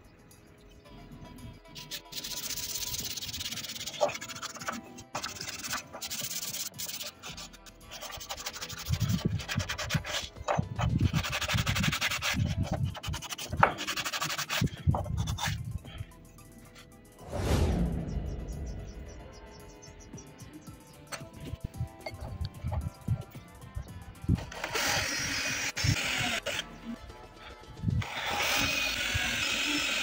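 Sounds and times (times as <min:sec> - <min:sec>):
faint background music: 0:00.0 - 0:30.0
sandpaper rubbing on wood: 0:01.8 - 0:15.7.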